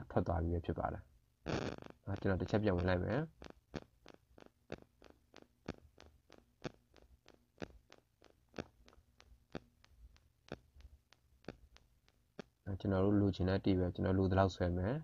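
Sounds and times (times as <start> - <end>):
faint room hum: 0.0 - 15.0
soft ticks: 2.8 - 12.6.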